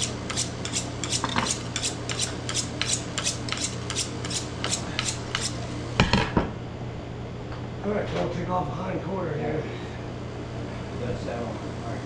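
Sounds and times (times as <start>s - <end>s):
knife being sharpened: 0.0s - 5.6s
steady low hum: 0.0s - 12.0s.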